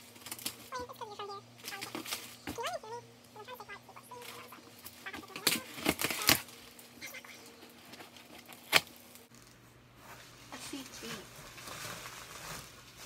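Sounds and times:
packaging crackling: 0.0s - 1.0s, 4.1s - 6.9s, 7.6s - 9.6s, 10.8s - 13.0s.

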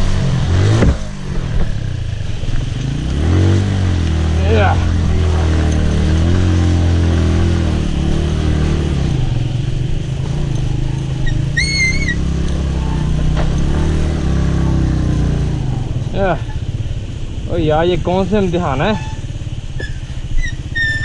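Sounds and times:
motorcycle engine running: 0.0s - 21.0s
high whistle-like tone: 11.2s - 12.2s, 19.8s - 21.0s.

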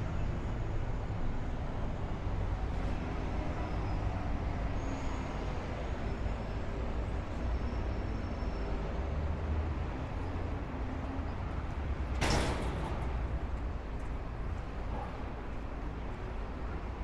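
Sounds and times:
city street traffic rumble: 0.0s - 17.0s.

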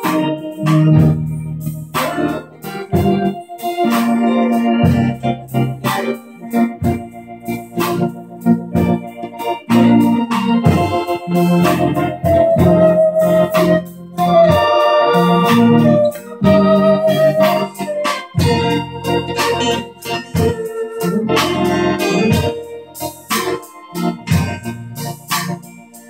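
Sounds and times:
organ music: 0.0s - 26.0s.

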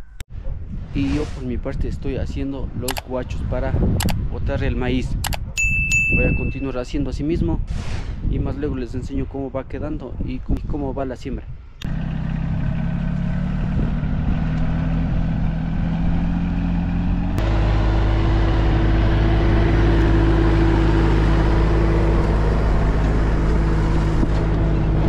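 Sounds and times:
tractor diesel engine under load: 11.8s - 25.0s.

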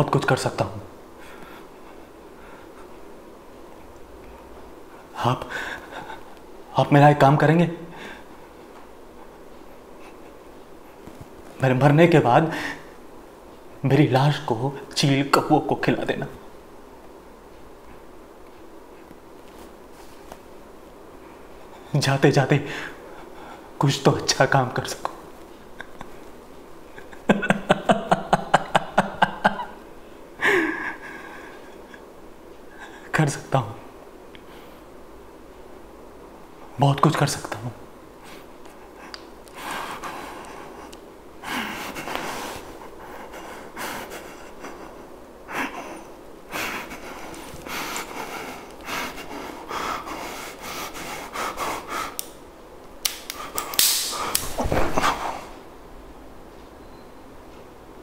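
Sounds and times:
man laughing: 5.4s - 6.4s, 25.7s - 32.0s
man panting heavily: 38.2s - 52.2s.

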